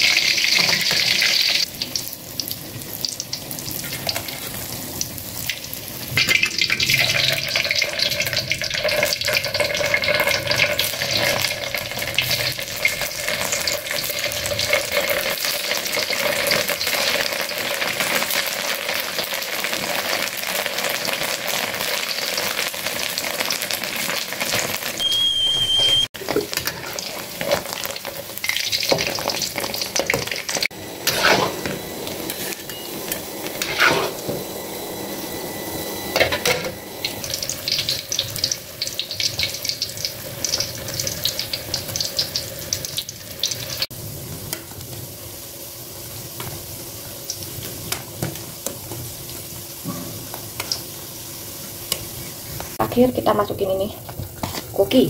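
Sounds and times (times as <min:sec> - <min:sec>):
hot oil crackling and sizzling: 0:00.0 - 0:55.0
metal spatula scraping wok: 0:26.3 - 0:27.8, 0:31.0 - 0:34.4.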